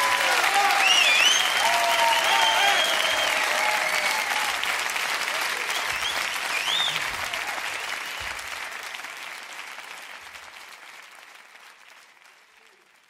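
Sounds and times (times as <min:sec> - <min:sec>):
audience applauding: 0:00.0 - 0:13.0
rising and falling whistle: 0:00.8 - 0:03.5.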